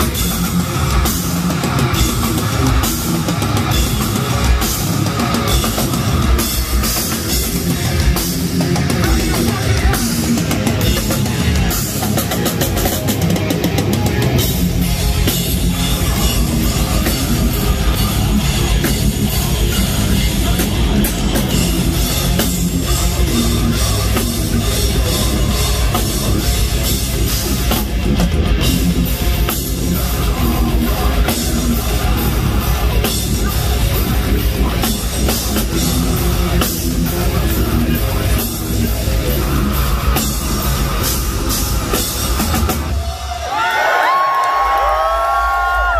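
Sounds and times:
distorted guitars: 0.0s - 45.9s
screamed vocal: 43.2s - 45.9s.

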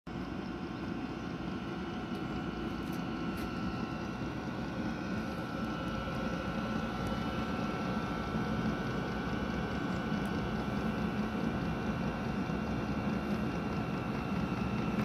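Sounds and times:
heater fan humming with whine: 0.1s - 15.0s.

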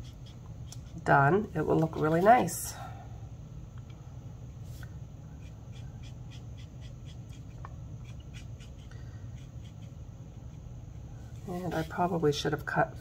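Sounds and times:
steady low hum: 0.0s - 13.0s
marker scratching on paper: 5.7s - 9.9s, 11.6s - 12.2s.

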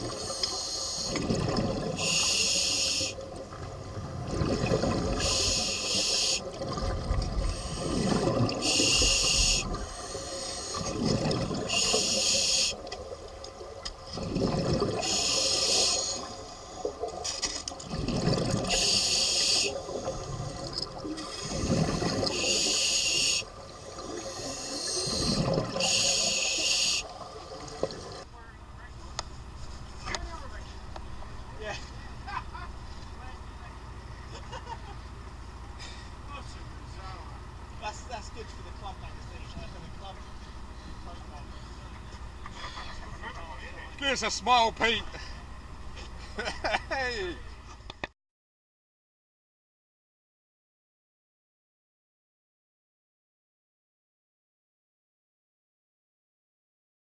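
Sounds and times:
regulator inhalation hiss: 0.1s - 1.2s, 2.0s - 3.2s, 5.2s - 6.5s, 8.6s - 10.9s, 11.7s - 12.8s, 15.0s - 16.3s, 18.7s - 19.8s, 22.3s - 23.5s, 24.3s - 27.1s
exhaled bubbles rumbling: 1.1s - 2.2s, 3.2s - 5.7s, 6.4s - 12.2s, 13.0s - 15.4s, 17.8s - 19.0s, 19.7s - 22.7s, 23.6s - 26.4s.

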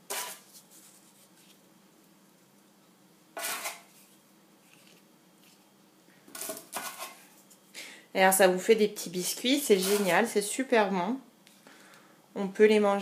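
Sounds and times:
biscuits clattering on china plate: 6.4s - 7.3s.

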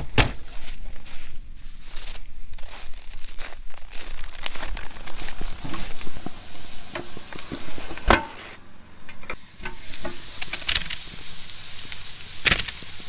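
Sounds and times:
sausages sizzling on a grill: 4.2s - 13.0s.

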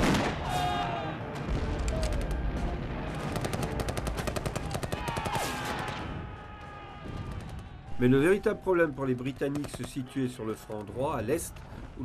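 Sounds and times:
rifle and machine-gun shots: 3.2s - 6.0s.

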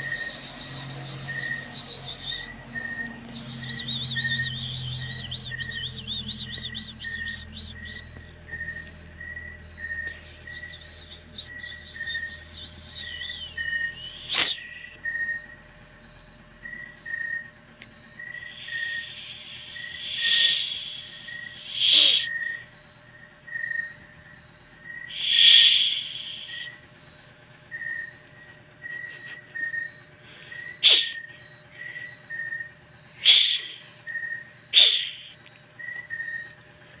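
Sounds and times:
crickets chirping: 0.0s - 37.0s
cat hissing: 14.3s - 14.6s, 30.8s - 31.2s, 34.8s - 35.2s.

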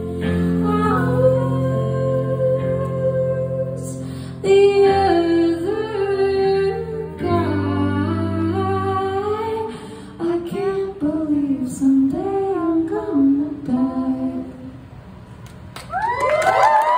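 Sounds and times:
woman singing through a pa: 0.6s - 14.7s.

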